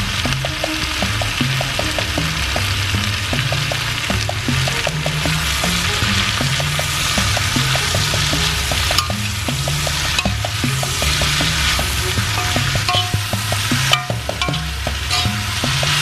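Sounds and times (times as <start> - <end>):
vegetables sizzling in a skillet: 0.0 - 16.0
spatula stirring: 6.9 - 16.0.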